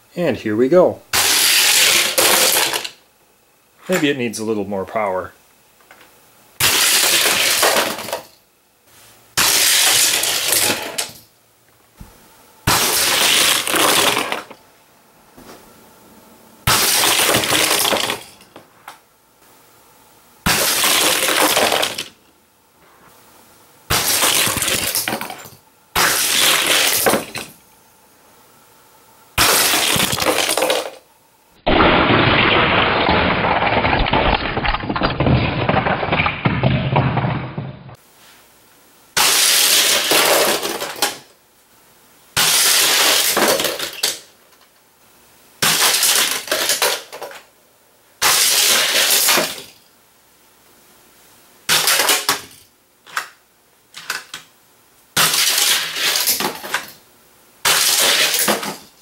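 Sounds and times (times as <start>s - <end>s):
toy cars crashing off track: 1.1s - 3.0s, 6.6s - 8.4s, 9.4s - 11.3s, 12.7s - 14.6s, 16.6s - 18.6s, 20.4s - 22.2s, 23.9s - 27.6s, 29.4s - 31.0s, 31.7s - 37.7s, 39.2s - 41.3s, 42.4s - 44.3s, 45.6s - 47.6s, 48.2s - 49.9s, 51.6s - 54.5s, 55.1s - 57.0s, 57.6s - 59.0s
toy cars rattling down plastic track: 1.2s - 3.0s, 6.6s - 8.3s, 9.4s - 11.2s, 12.7s - 14.6s, 16.7s - 18.4s, 20.5s - 22.2s, 24.0s - 27.5s, 29.4s - 31.0s, 39.2s - 41.3s, 42.4s - 44.3s, 45.6s - 47.5s, 48.2s - 49.8s, 51.7s - 53.4s, 54.0s - 54.5s, 55.2s - 57.0s, 57.7s - 59.0s.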